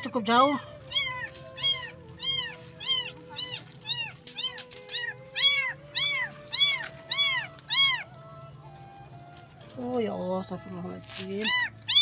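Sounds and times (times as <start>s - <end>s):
kitten mewing: 0.9s - 8.0s, 11.4s - 12.0s.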